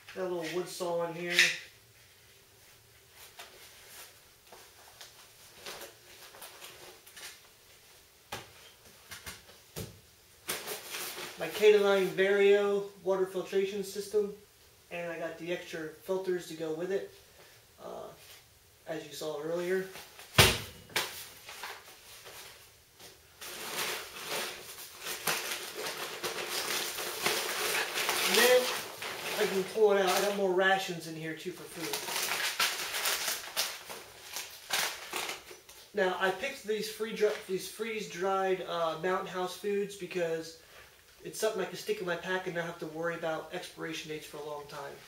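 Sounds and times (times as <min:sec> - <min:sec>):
rustling of nylon pouches: 0:10.4 - 0:12.2, 0:21.0 - 0:30.8, 0:31.4 - 0:37.5.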